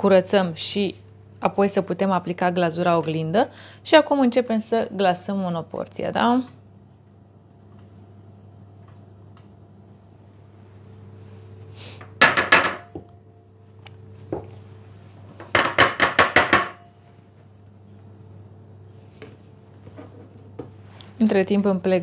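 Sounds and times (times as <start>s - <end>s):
low steady hum: 0.0s - 22.0s
wire rack knocking on wood: 12.2s - 12.9s, 15.5s - 16.8s.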